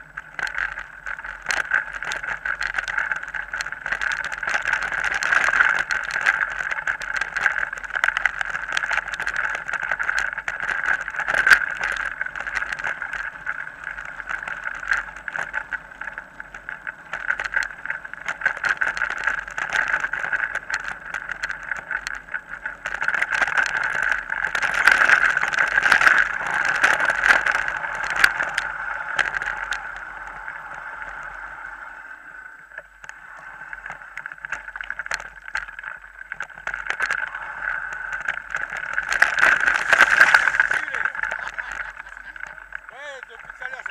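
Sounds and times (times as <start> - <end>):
bike tyres rattling on gravel: 0.0 - 43.9.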